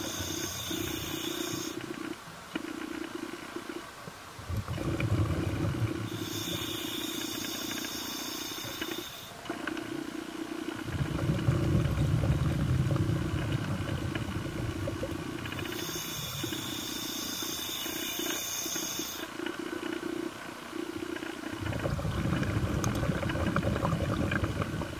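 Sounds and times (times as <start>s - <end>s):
exhaled bubbles: 4.4s - 7.8s, 10.5s - 16.8s, 20.8s - 24.9s
diver inhaling through regulator: 4.8s - 9.3s.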